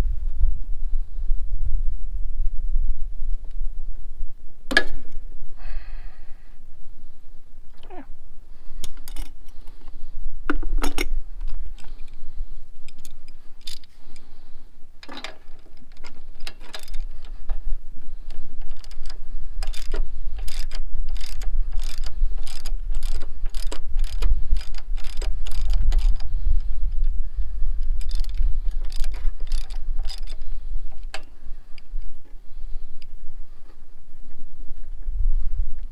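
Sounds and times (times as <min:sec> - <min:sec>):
ratchet wrench clicking: 0:08.8 - 0:09.7, 0:12.8 - 0:14.3, 0:15.0 - 0:17.6, 0:18.2 - 0:26.5, 0:27.8 - 0:32.0.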